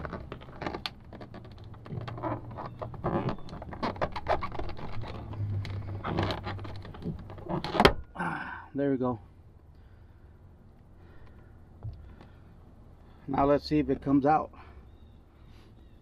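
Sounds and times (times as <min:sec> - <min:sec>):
plastic trim scraping and clicking: 0:00.0 - 0:08.0.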